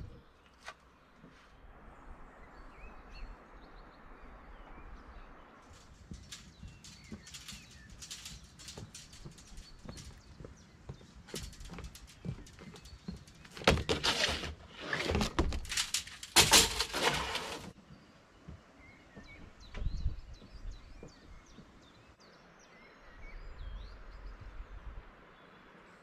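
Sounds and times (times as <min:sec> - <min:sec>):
small birds chirping: 0:02.3 - 0:17.0, 0:17.6 - 0:26.0
plastic sheeting rustling and crackling: 0:05.8 - 0:17.8.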